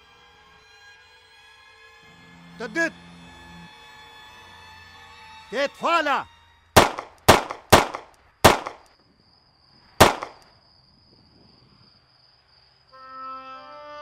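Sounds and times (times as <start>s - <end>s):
music: 0.0s - 6.8s, 12.9s - 14.0s
gunshots with echo: 6.8s - 8.8s, 10.0s - 10.4s.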